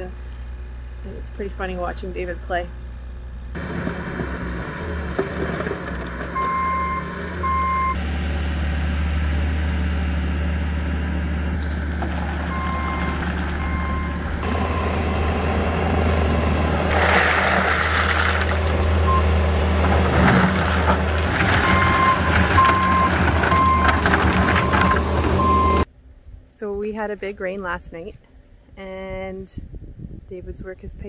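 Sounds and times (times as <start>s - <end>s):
diesel engine running: 0.0s - 25.9s
backup alarm beeping: 6.4s - 8.0s, 12.5s - 15.0s, 21.6s - 25.9s.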